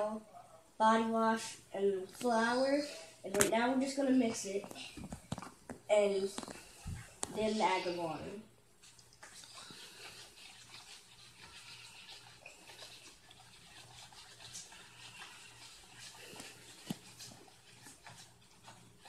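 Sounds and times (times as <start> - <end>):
spoons stirring thick mix: 5.4 - 19.0.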